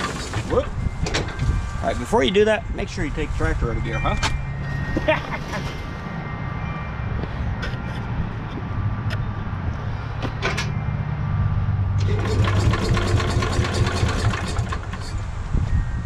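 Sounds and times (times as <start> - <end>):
tractor engine idling: 0.0 - 1.0, 12.0 - 15.3.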